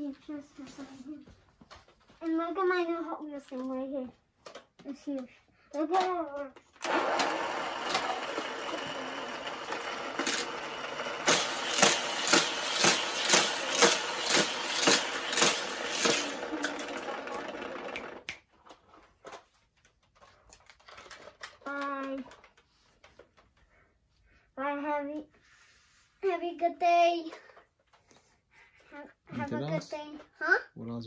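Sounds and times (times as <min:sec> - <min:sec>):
toy cars clattering: 0:04.4 - 0:23.4
toy track booster whirring: 0:05.9 - 0:19.4, 0:20.5 - 0:23.2.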